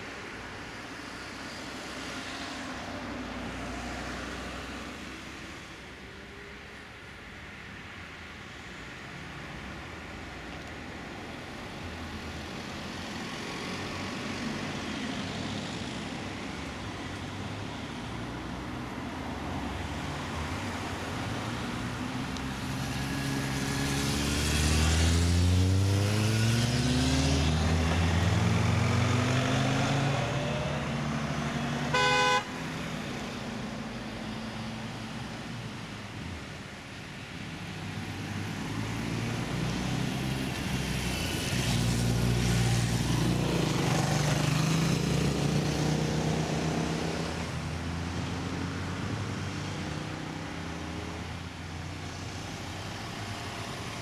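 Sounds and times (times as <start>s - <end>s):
car accelerating past: 22.4s - 33.5s
car horn toot: 31.9s - 32.7s.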